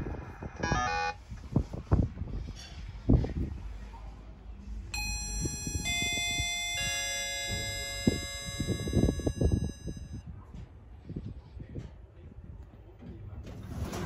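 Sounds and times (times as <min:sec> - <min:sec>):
descending electronic chime: 0:05.0 - 0:10.2.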